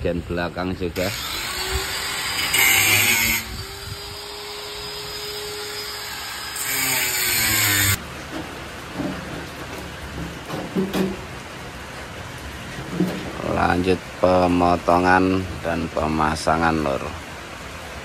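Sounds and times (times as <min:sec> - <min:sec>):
angle grinder whining: 0:01.0 - 0:08.0
grinder cutting steel: 0:01.0 - 0:08.0.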